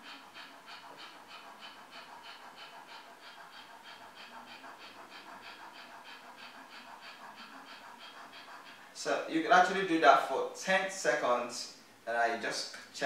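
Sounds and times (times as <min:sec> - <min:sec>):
man panting quickly: 0:00.0 - 0:10.4.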